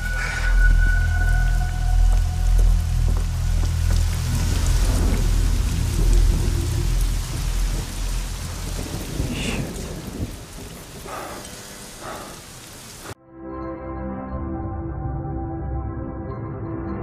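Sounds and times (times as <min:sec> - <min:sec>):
heavy rain falling: 0:00.0 - 0:13.2
low rumble of thunder: 0:03.8 - 0:12.2.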